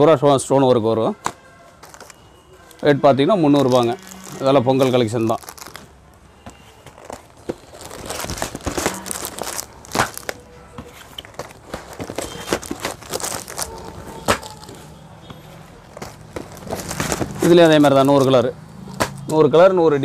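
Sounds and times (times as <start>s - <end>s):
plastic packaging crinkling: 1.8s - 19.3s
cardboard boxes tapping and sliding: 6.5s - 13.6s.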